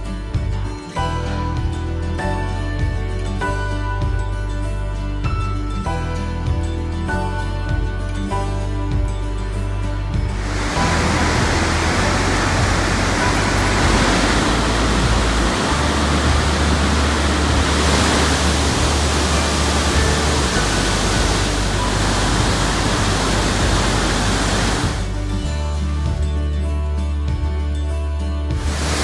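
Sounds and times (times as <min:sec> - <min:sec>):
soft background music: 0:00.0 - 0:29.0
waterfall rushing: 0:10.3 - 0:25.9, 0:28.6 - 0:29.0.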